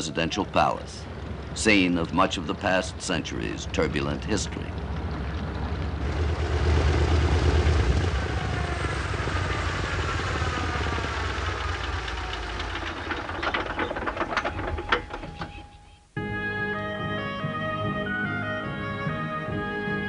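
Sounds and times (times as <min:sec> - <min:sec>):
propeller engines spinning down: 0:00.1 - 0:15.7
slowing clicks and knocks: 0:11.7 - 0:15.7.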